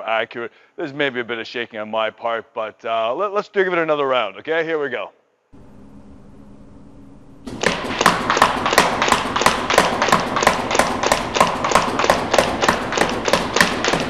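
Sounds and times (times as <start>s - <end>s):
paintball marker firing: 7.5s - 14.0s
paintballs striking target: 7.5s - 14.0s.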